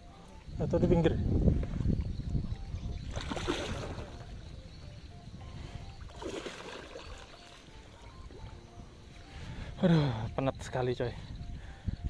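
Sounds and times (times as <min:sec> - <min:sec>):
fish splashing in water: 0:03.0 - 0:04.2, 0:06.0 - 0:08.3.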